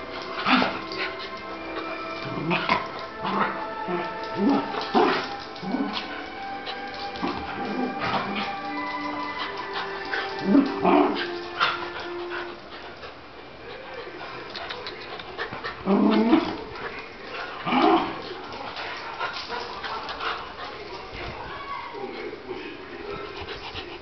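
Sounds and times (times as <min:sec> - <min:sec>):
dogs barking and yipping: 0:00.0 - 0:13.4.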